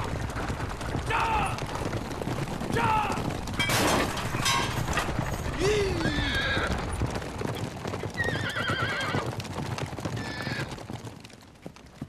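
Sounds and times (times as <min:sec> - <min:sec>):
horse hooves clattering: 0:00.0 - 0:12.0
horse whinnying: 0:05.5 - 0:07.0, 0:08.1 - 0:09.3, 0:10.1 - 0:10.8.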